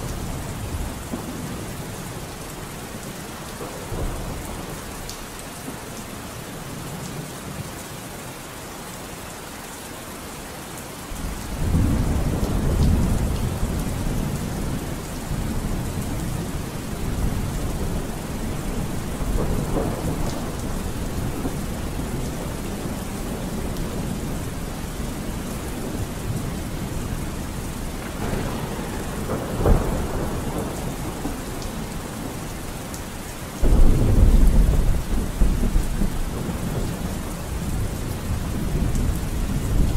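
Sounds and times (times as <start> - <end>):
steady rain: 0.0 - 39.9
rolling thunder: 11.1 - 32.8, 33.6 - 39.9.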